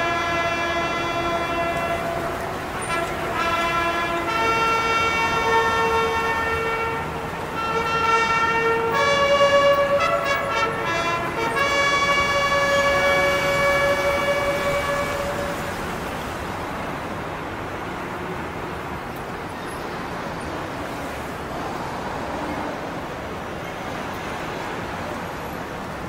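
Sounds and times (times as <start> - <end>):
bugle call: 0.0 - 16.0.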